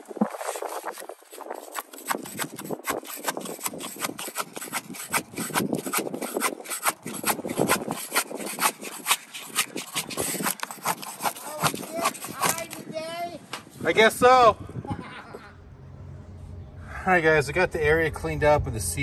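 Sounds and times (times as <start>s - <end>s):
scraping sealant off roof: 0.3s - 12.9s.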